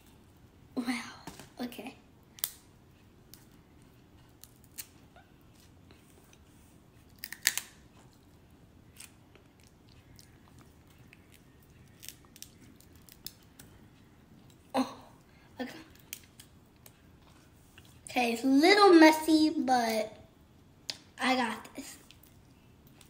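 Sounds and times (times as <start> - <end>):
crab shells cracking: 7.1 - 7.8, 11.8 - 13.6.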